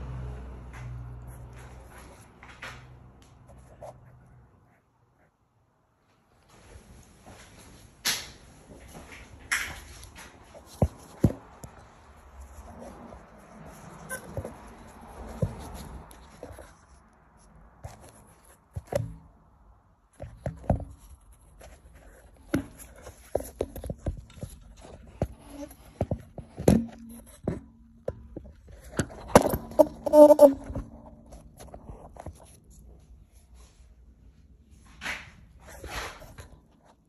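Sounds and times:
knocks and clunks of handling: 20.1s - 32.7s.

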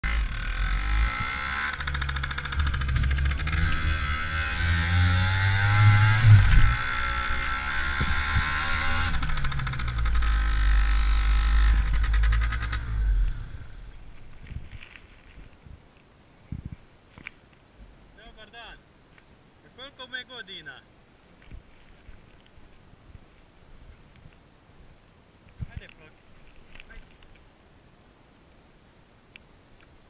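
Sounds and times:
motor scooter riding: 0.0s - 14.0s
wind on microphone: 5.6s - 6.9s, 7.8s - 9.2s, 13.5s - 16.9s.

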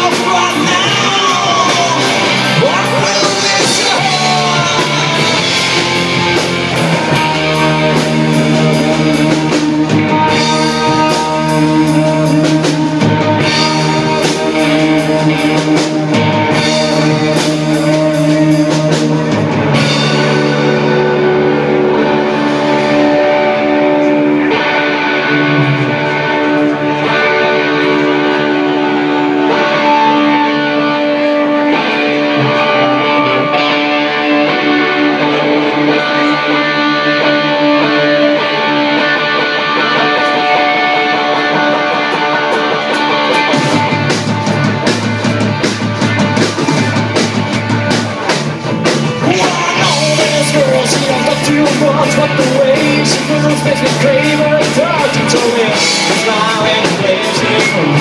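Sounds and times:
drum kit with cymbals: 0.0s - 21.4s, 41.4s - 58.0s
electric bass: 0.0s - 58.0s
electric guitars playing: 0.0s - 58.0s.

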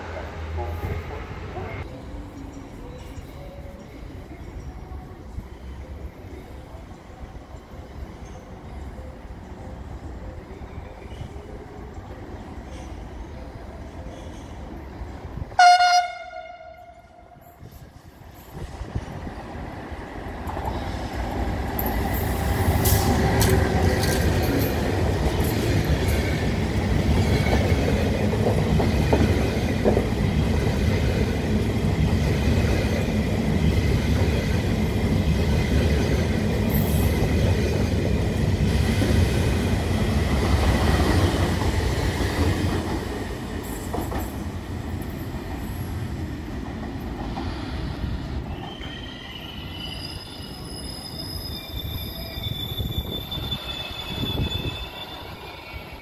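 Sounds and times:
passenger train rumbling past: 0.0s - 56.0s
train horn blast: 15.6s - 17.4s
faint wheel squeal: 48.5s - 56.0s.

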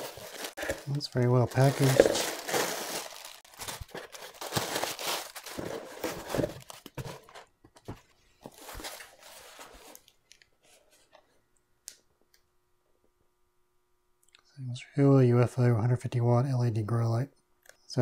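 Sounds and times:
plastic air pillows crinkling: 0.0s - 6.9s.

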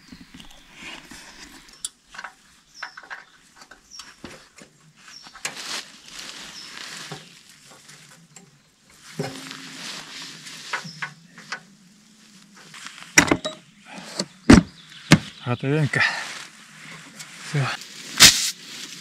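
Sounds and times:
sharp metal knocks: 13.2s - 13.6s.

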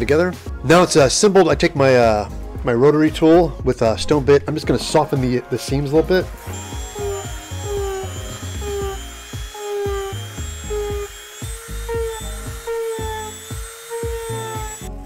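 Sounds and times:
background music: 0.0s - 15.0s
rotary tool grinding foam: 6.4s - 15.0s.

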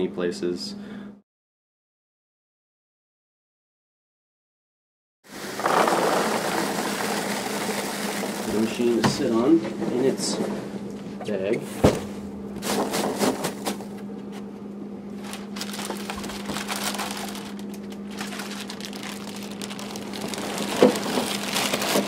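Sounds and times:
steady low hum: 0.0s - 1.2s, 8.4s - 22.0s
packing peanuts rustling: 5.3s - 9.3s, 15.2s - 22.0s
plastic bag crinkling: 5.4s - 9.0s, 15.2s - 22.0s.

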